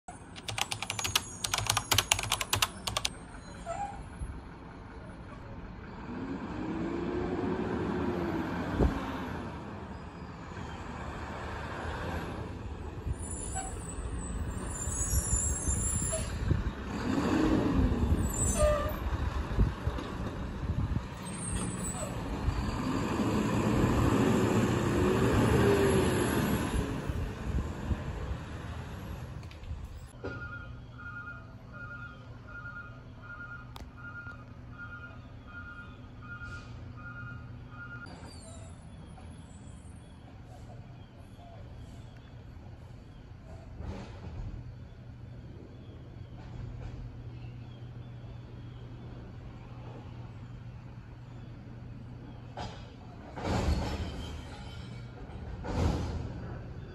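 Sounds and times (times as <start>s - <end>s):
sharp clicks: 0.4s - 3.1s
diesel engine revving: 16.5s - 18.4s, 19.0s - 29.4s.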